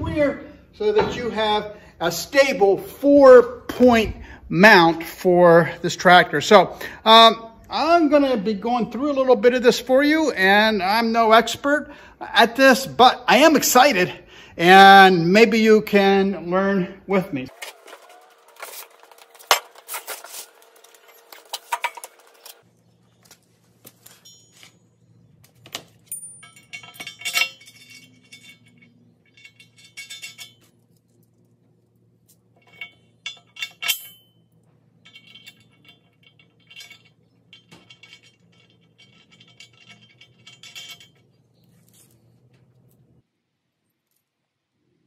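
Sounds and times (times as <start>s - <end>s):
bolts and wrench clinking on metal: 17.5s - 43.1s.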